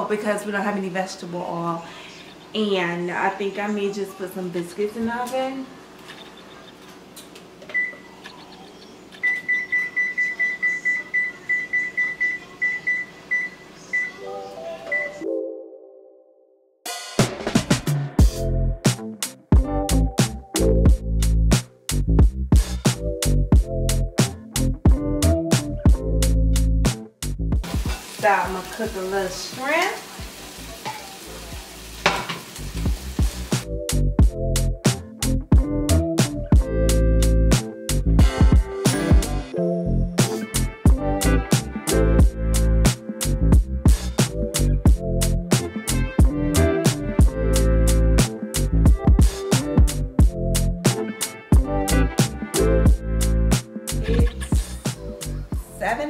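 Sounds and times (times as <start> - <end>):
oven control panel beeping: 7.7 - 14.2
food sizzling in a frying pan: 27.6 - 33.7.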